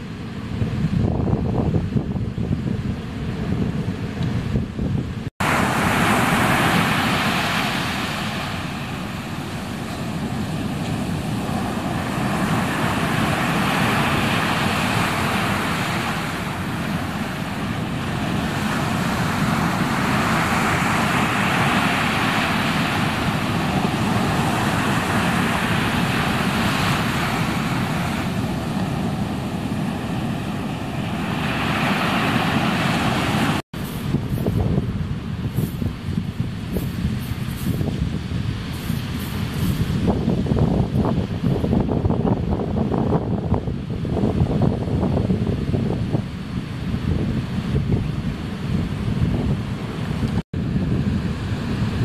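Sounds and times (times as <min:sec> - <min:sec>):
ocean surf breaking: 0:03.0 - 0:52.0.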